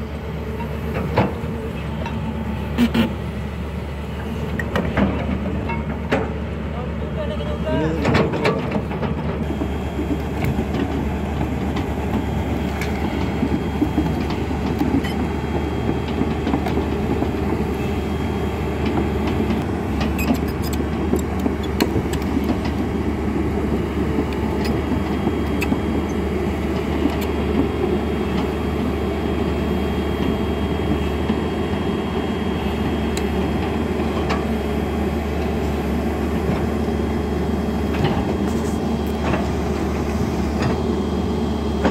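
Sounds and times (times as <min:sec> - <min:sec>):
excavator diesel engine humming: 0:00.0 - 0:41.9
steel tracks rattling and clanking: 0:07.6 - 0:29.6.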